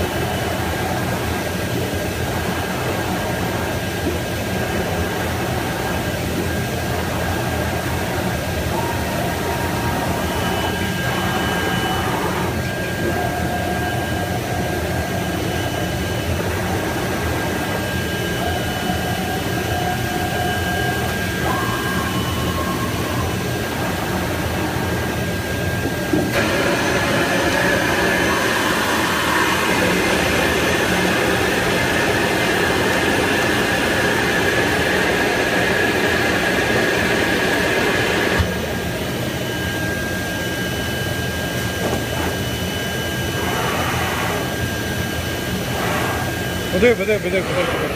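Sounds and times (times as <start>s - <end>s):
vacuum table blower noise: 26.1s - 38.8s, 39.6s - 47.9s.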